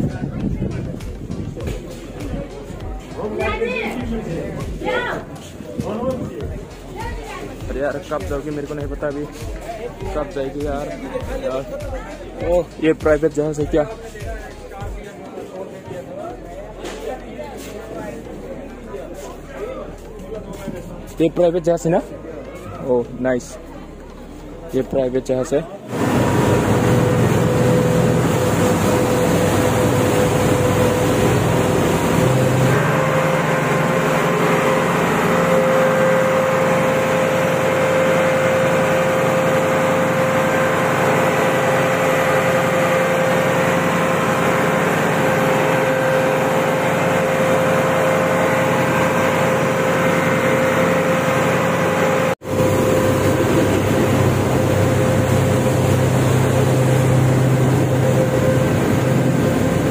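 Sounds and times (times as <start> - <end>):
diesel engine droning: 16.3 - 59.9.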